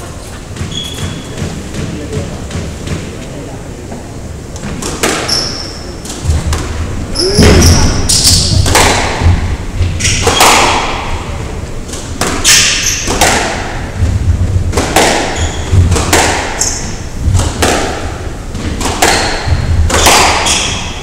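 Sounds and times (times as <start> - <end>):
shoes squeaking on wooden floor: 0.0 - 1.6, 7.1 - 8.6, 15.3 - 15.9
squash ball striking racquets and walls: 0.0 - 3.2, 4.6 - 21.0.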